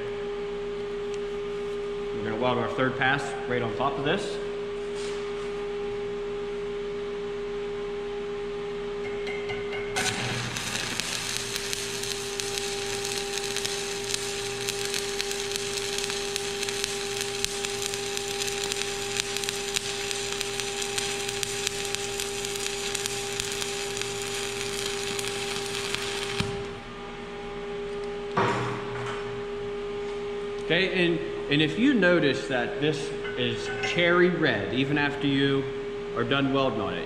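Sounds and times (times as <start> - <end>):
welding arc crackle: 10.0 - 26.9.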